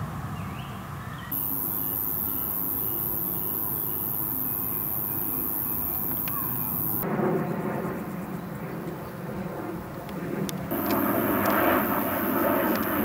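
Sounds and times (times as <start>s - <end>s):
insect high-pitched buzz: 1.3s - 7.1s, 10.7s - 13.0s.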